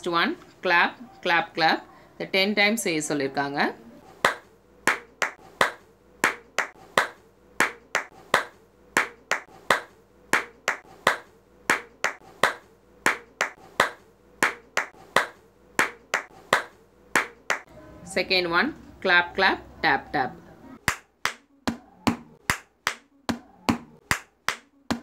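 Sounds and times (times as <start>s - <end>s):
hands clapping: 4.2s - 17.7s, 20.9s - 23.1s, 23.7s - 25.0s.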